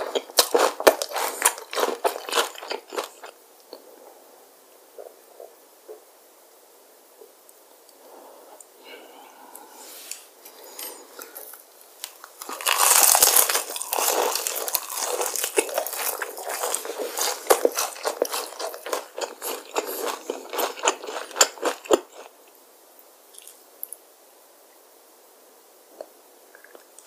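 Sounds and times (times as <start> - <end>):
crunching fried chicken: 0.0 - 3.4, 11.2 - 22.3.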